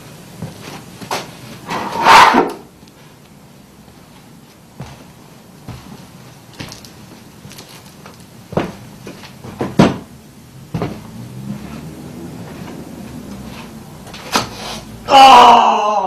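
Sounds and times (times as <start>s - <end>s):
knocks and bumps: 4.8s - 14.6s.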